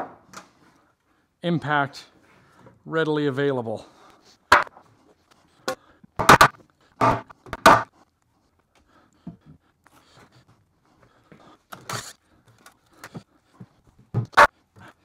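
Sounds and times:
wooden boards knocking: 6.2 - 7.9.

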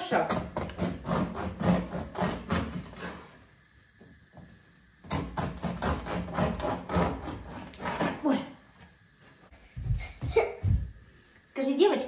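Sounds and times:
bread knife sawing crusty loaf: 0.3 - 3.3, 5.1 - 8.4.

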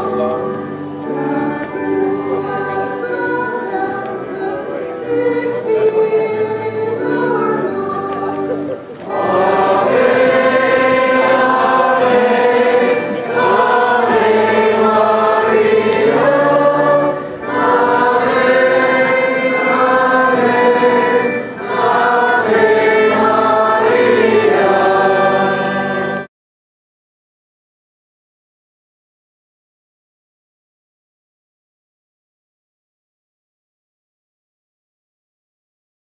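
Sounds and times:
crowd singing a hymn: 0.0 - 26.3.

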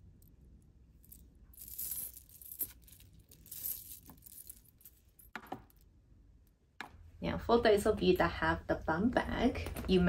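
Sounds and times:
metal chain links clinking: 1.0 - 5.3.

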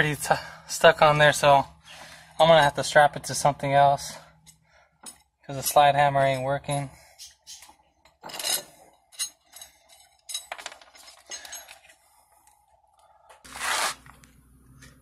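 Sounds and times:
metal tools clinking: 4.4 - 12.0.

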